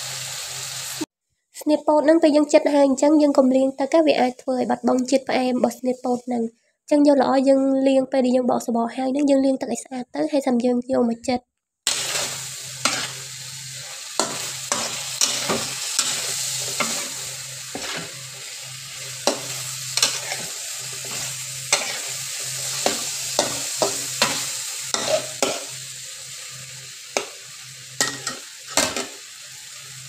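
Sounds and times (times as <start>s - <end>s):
food sizzling in a wok: 0.0s - 1.1s, 11.9s - 30.0s
spatula scraping a wok: 11.9s - 26.4s.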